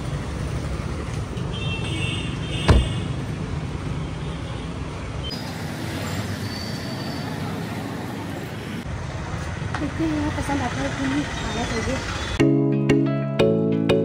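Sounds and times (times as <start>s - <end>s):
street traffic: 0.0s - 12.6s
car door slamming: 2.6s - 3.1s.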